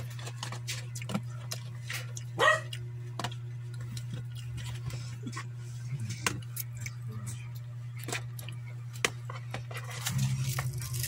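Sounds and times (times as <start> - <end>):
steady low hum: 0.0 - 11.0
pet barking: 2.4 - 2.8.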